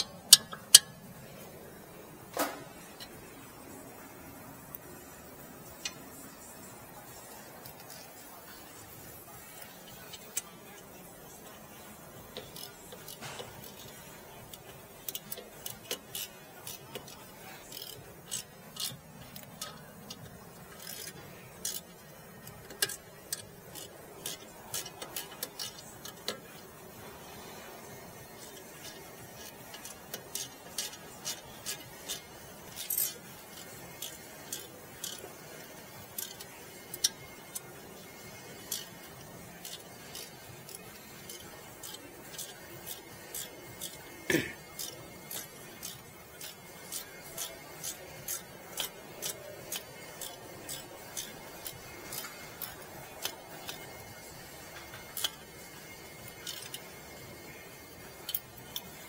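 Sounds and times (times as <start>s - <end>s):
light metallic clicks and clinks: 0.0s - 1.0s, 27.9s - 57.6s.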